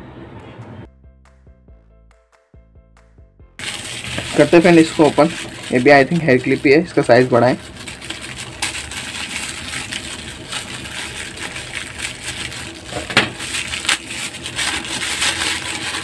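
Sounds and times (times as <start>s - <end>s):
plastic wrapper crackling: 3.6s - 16.0s.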